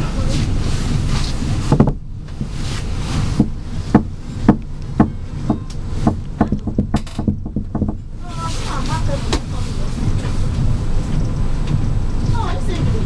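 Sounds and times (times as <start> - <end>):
low rumble of moving coach: 0.0 - 13.0
train wheels clacking over rail joints: 3.2 - 13.0.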